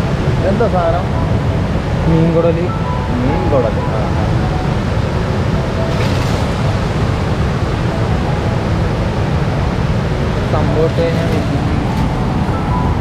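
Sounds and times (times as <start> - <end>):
rushing river water: 0.0 - 13.0.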